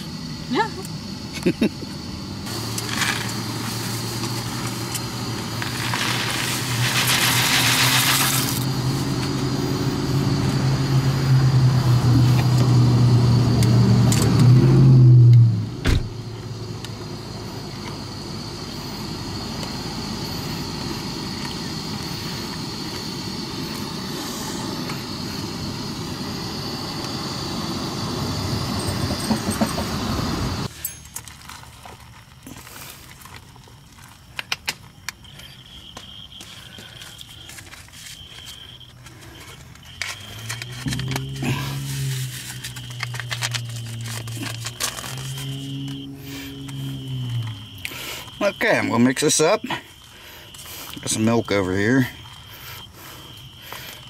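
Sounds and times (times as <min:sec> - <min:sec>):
low engine hum: 0:02.0 - 0:30.7, 0:40.1 - 0:48.4
gas burner hissing: 0:02.5 - 0:09.1, 0:19.7 - 0:30.7
dry pasta rattling into pot: 0:05.7 - 0:08.6.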